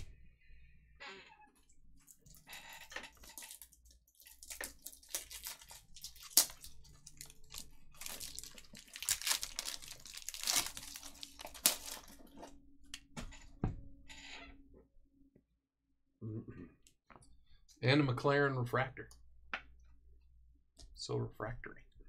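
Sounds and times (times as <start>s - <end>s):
foil wrapper tearing and crinkling: 3.2s - 12.4s.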